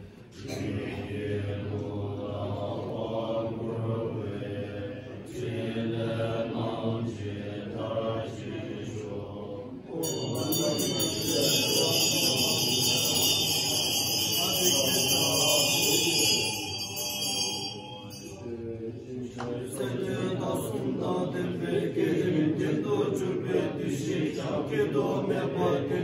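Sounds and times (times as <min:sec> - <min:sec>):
monks chanting in low voices: 0:00.0 - 0:26.0
bright metallic ringing: 0:09.9 - 0:18.7.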